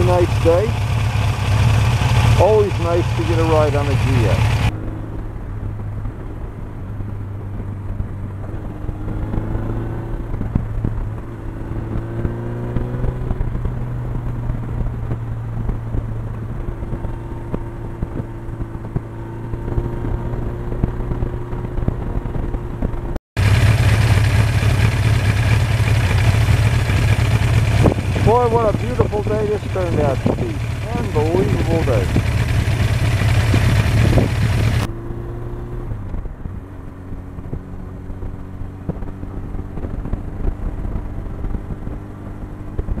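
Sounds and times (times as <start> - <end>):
motorcycle engine idling: 0.0 - 4.7, 23.4 - 34.9
motorcycle engine accelerating: 0.0 - 43.0.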